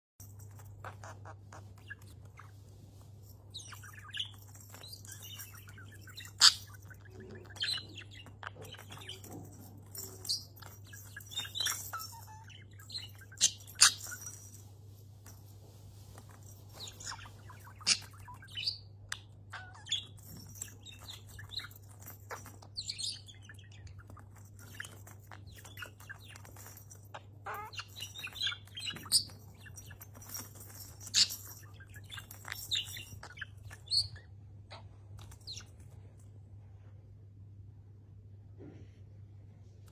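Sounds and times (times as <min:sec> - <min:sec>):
faint low hum: 0:00.2 - 0:39.9
budgerigar chirping and chattering: 0:27.4 - 0:34.2.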